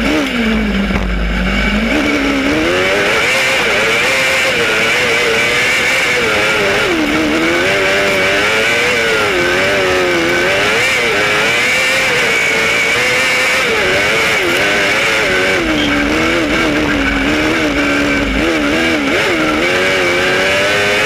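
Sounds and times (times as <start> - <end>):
kart engine revving: 0.0 - 21.0
high-pitched whine: 13.7 - 20.4.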